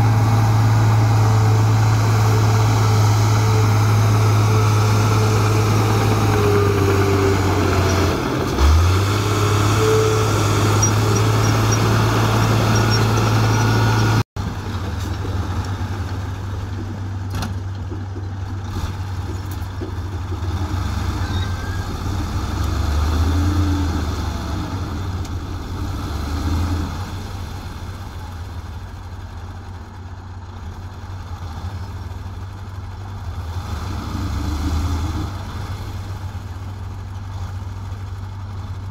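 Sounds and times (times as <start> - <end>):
bulldozer diesel engine running: 0.0 - 38.9
dump truck diesel engine idling: 27.4 - 33.3.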